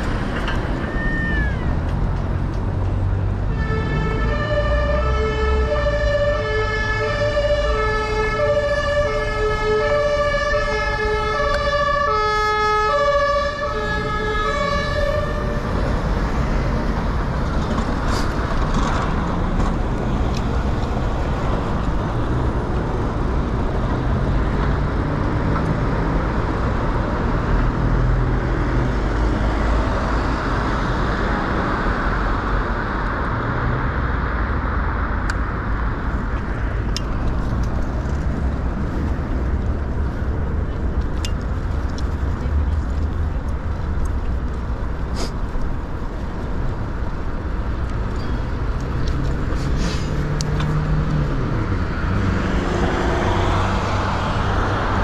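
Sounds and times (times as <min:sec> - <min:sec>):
city traffic: 0:00.0 - 0:55.0
two-tone siren: 0:03.6 - 0:15.7.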